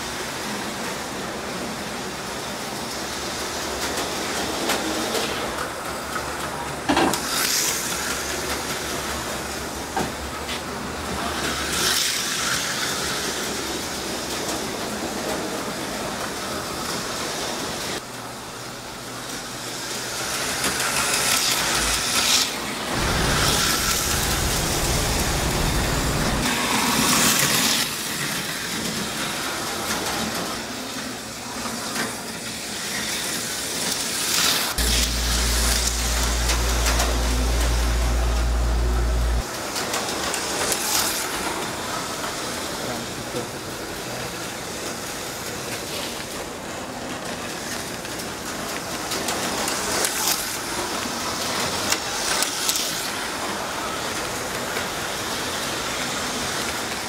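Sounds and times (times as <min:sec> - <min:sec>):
tyres hissing on plastic track: 0:00.0 - 0:57.0
slot car motors whirring: 0:20.5 - 0:26.5, 0:34.8 - 0:39.5
low hum: 0:22.9 - 0:26.5, 0:34.8 - 0:39.4.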